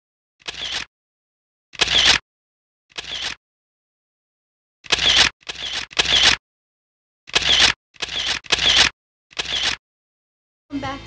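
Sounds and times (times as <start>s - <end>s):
camera shutter clicking: 0.4s - 0.9s, 1.8s - 2.2s, 2.9s - 3.4s, 4.8s - 6.4s, 7.3s - 9.8s.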